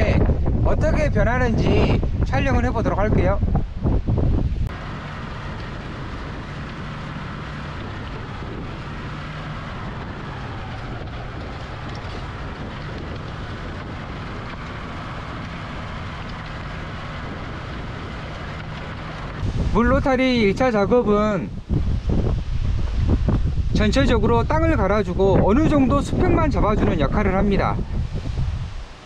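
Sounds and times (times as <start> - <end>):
tractor engine running: 4.6 - 21.0.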